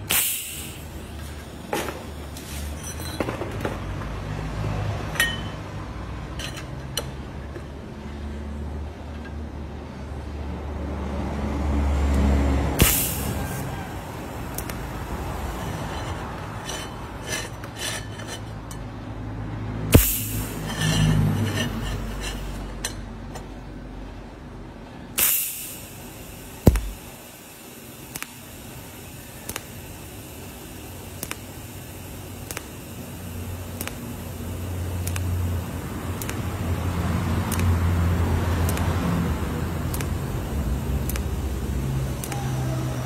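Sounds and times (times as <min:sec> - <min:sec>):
welding arc hissing: 0:00.0 - 0:02.8, 0:12.7 - 0:18.4, 0:19.9 - 0:22.7, 0:25.2 - 0:43.0
light metal chinks: 0:05.1 - 0:05.6
sharp clicks: 0:29.4 - 0:29.7, 0:36.2 - 0:36.4, 0:37.4 - 0:37.8, 0:38.6 - 0:39.0, 0:39.9 - 0:40.2, 0:41.0 - 0:41.3.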